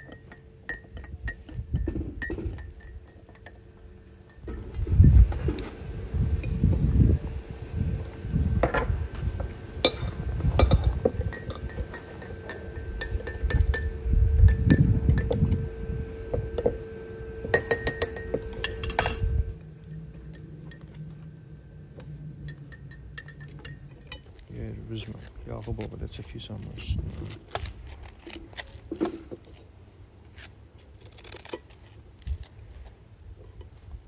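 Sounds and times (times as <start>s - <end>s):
low rumbling: 0.0s - 25.5s
low steady hum: 0.0s - 34.0s
dishes and utensils clinking: 9.9s - 13.9s.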